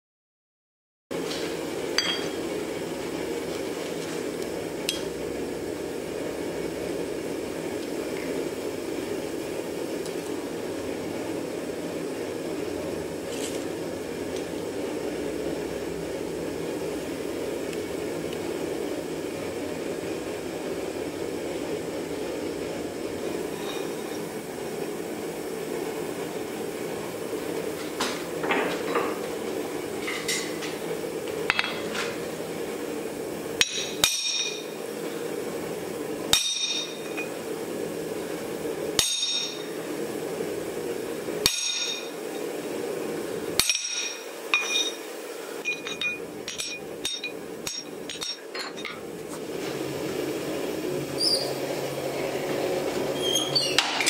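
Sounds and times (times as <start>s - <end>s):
hammer striking metal punch: 2.0s - 2.4s, 36.4s - 36.9s, 41.5s - 42.0s, 43.6s - 45.0s.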